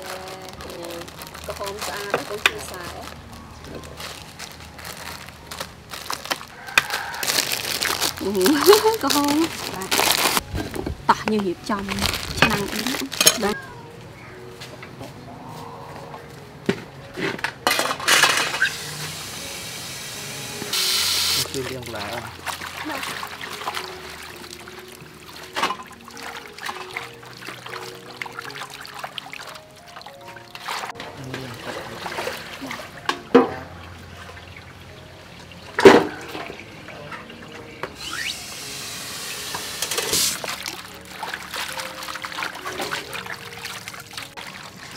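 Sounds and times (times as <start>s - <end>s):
water running from hose: 0.0s - 3.1s, 4.0s - 10.4s, 11.7s - 13.6s, 18.4s - 33.4s, 38.0s - 44.9s
metal bowls clanking on concrete: 12.4s - 13.6s, 30.8s - 33.8s, 35.7s - 37.7s.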